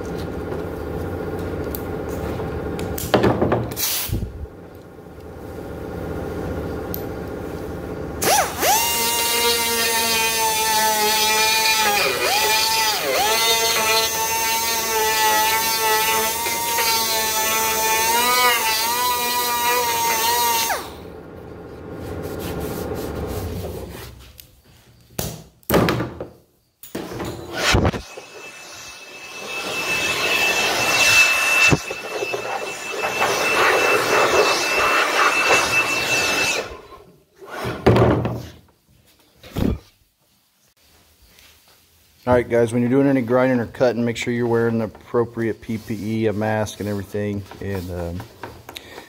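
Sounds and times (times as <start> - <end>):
power grinder whining: 8.2 - 21.1, 27.4 - 37.1.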